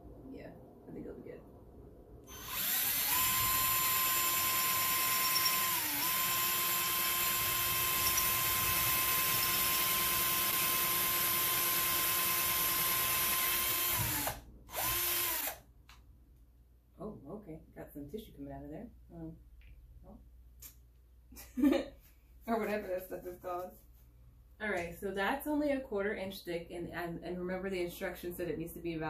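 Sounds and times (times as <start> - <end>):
cordless drill whining: 2.3 - 15.6.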